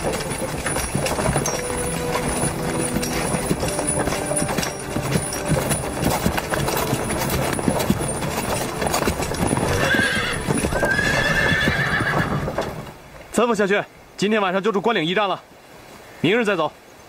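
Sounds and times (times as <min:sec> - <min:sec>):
horse whinnying: 0:00.0 - 0:12.8
hooves clip-clopping on dirt: 0:00.0 - 0:13.4.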